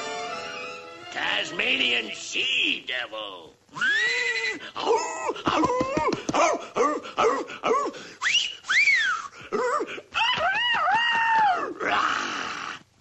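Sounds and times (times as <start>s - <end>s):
cartoon squeal: 3.8s - 4.6s.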